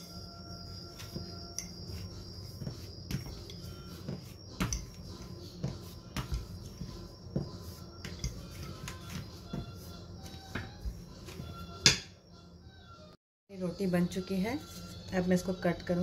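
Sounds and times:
rolling pin rolling dough: 0.0s - 12.0s.

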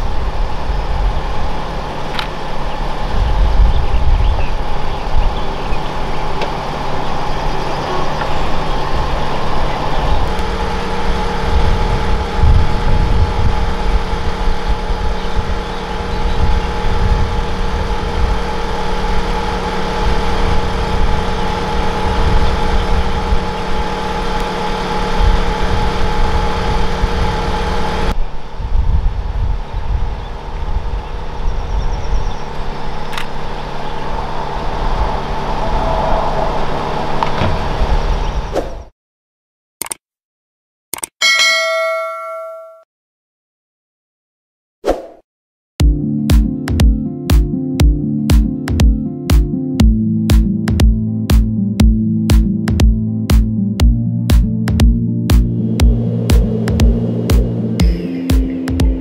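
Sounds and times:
helicopter rotor beat and rumble: 0.0s - 28.2s, 30.3s - 34.1s, 49.8s - 59.0s
helicopter turbine whine: 0.0s - 38.4s, 55.4s - 59.0s.

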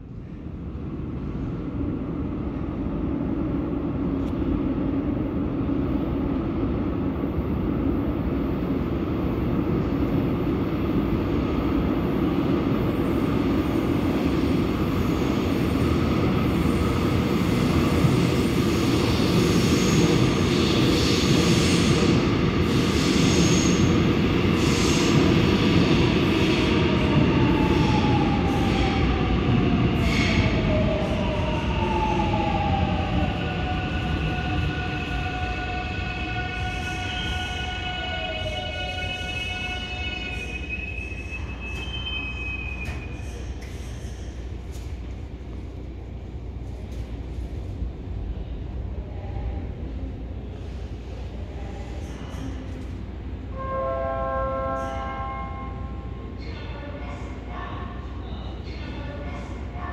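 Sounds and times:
train rumble in tunnel: 0.0s - 59.9s.

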